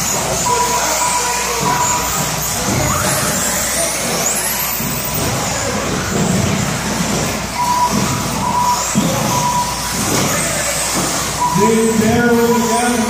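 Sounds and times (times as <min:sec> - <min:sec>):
rc car motors whining: 0:00.0 - 0:13.0
short beeps: 0:00.3 - 0:02.2, 0:07.6 - 0:10.2, 0:11.3 - 0:13.0.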